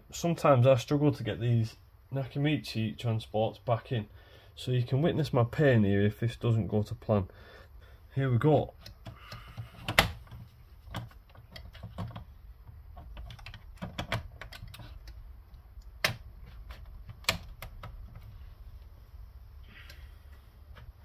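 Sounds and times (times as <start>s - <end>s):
tape mechanism clicks and knocks: 8.8s - 18.2s.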